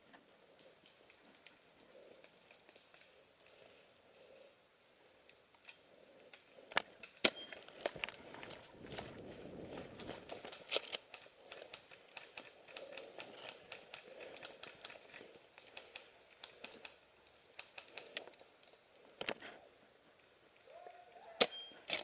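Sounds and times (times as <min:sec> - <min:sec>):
dry leaves and twigs crackling: 0:05.3 - 0:19.5.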